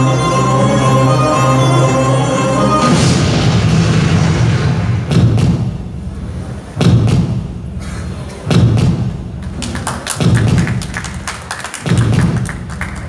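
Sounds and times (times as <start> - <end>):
string music: 0.0 - 3.8
noisy swell: 0.0 - 6.8
heavy low booming thuds: 3.2 - 7.8, 8.5 - 9.4, 10.2 - 10.8.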